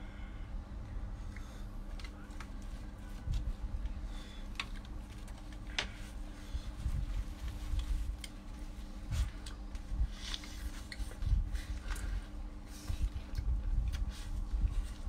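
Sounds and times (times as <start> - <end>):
steady low hum: 0.0 - 15.0
biting and chewing: 4.2 - 6.0, 7.5 - 15.0.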